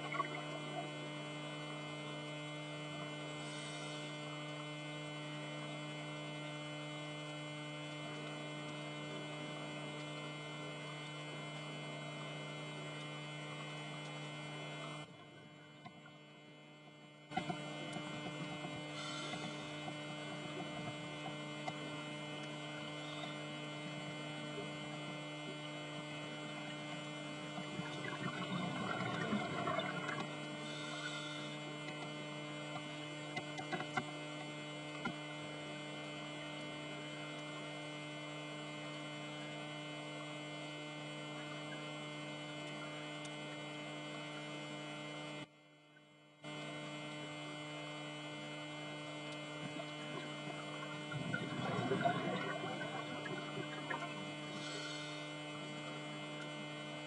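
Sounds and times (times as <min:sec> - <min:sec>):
scuba exhaust bubbles: 0:00.0 - 0:05.0, 0:17.3 - 0:35.2, 0:48.9 - 0:57.0
camera electrical hum: 0:00.0 - 0:57.0.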